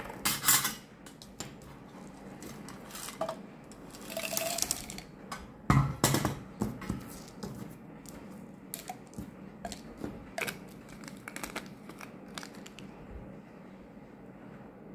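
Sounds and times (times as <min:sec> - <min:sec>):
capsules clattering into bottle: 0:02.9 - 0:05.1.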